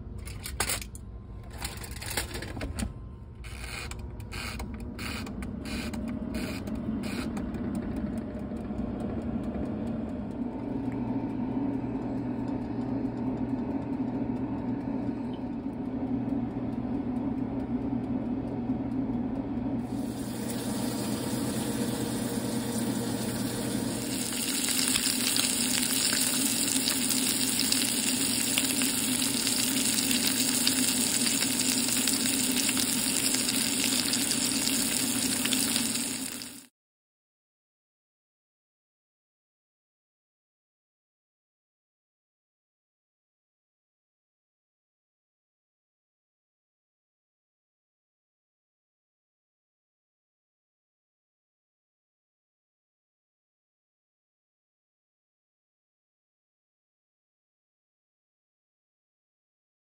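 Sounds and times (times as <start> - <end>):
countertop oven humming: 0.0 - 36.7
frying sizzle: 19.9 - 36.7.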